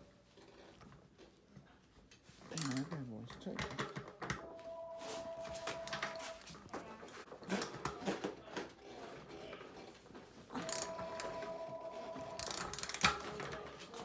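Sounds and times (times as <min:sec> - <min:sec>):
ratchet wrench clicking: 0:02.6 - 0:02.9, 0:12.4 - 0:13.2.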